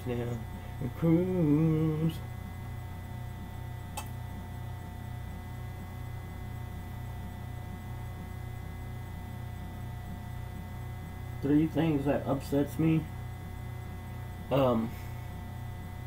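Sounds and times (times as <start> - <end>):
low electrical hum: 0.0 - 16.0
faint click: 3.9 - 4.2.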